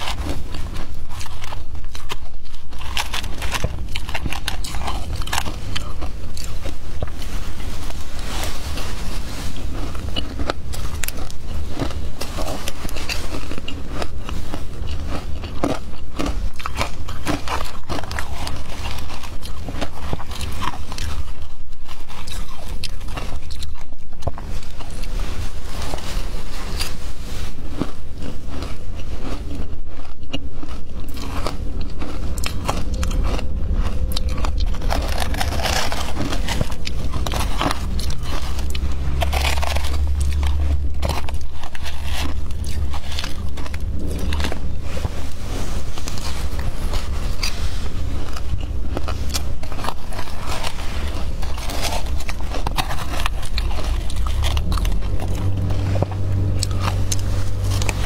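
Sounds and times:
crunching and chewing ice: 0.0s - 58.0s.

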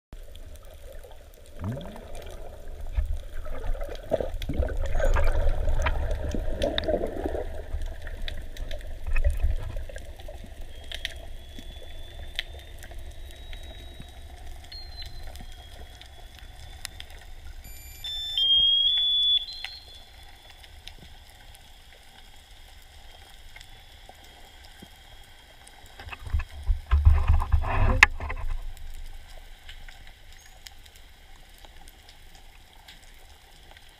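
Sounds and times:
water churning and bubbling underwater: 0.2s - 17.7s, 18.3s - 33.9s
bumps and rubbing on camera housing: 26.2s - 28.6s.

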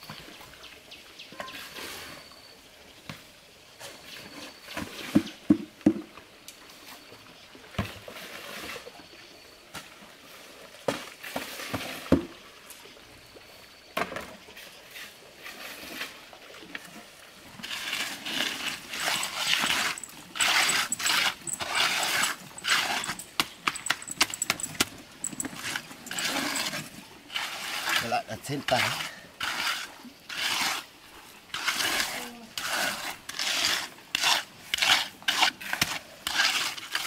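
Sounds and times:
float scraping wet concrete: 7.8s - 9.1s, 10.3s - 12.3s, 14.2s - 37.0s.

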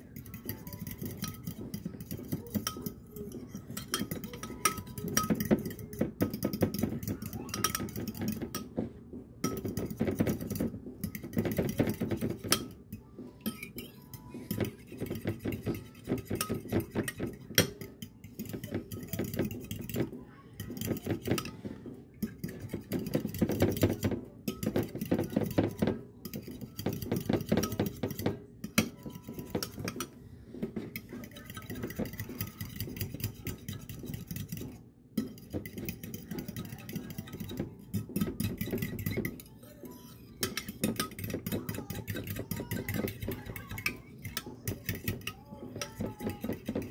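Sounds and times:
fork beating eggs in a bowl: 0.0s - 46.9s.

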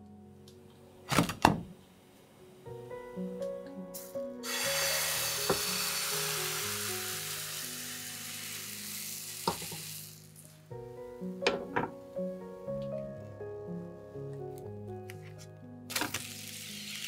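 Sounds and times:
soft background music: 0.0s - 17.0s
batter sizzling in a frying pan: 4.4s - 10.3s, 15.9s - 17.0s.

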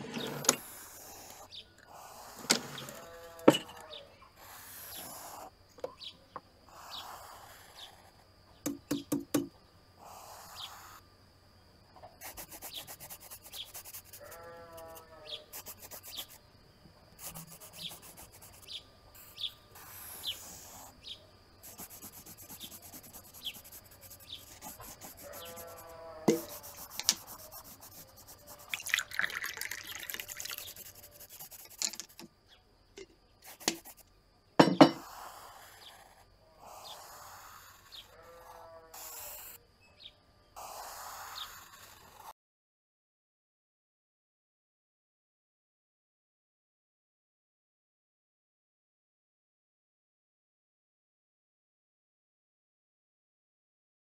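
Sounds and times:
pencil scratching on paper: 0.0s - 5.5s, 6.7s - 8.3s, 12.2s - 16.4s, 17.2s - 32.3s, 33.4s - 34.0s, 34.7s - 39.6s, 40.6s - 42.3s
water poured into a glass: 28.7s - 30.6s.

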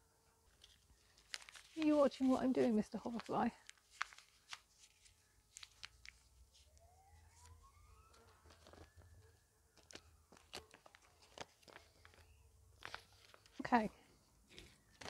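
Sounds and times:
paper seed packet rustling: 0.5s - 6.8s, 8.1s - 15.0s
faint distant siren: 4.6s - 15.0s.

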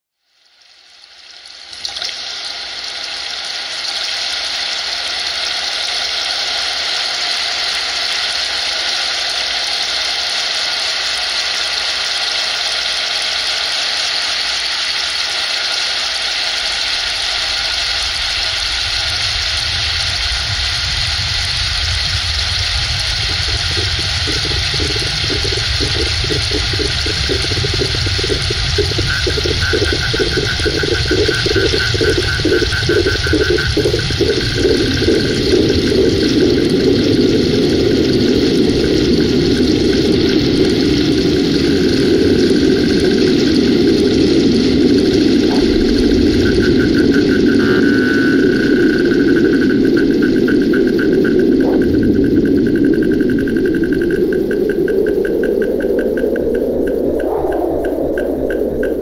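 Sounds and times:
flowing water rushing: 1.7s - 59.0s
low rumble: 17.6s - 59.0s.

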